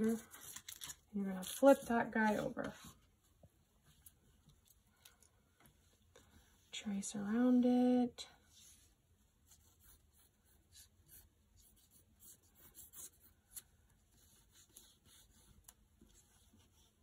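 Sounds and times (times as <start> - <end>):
pencil scratching on paper: 8.6 - 17.0.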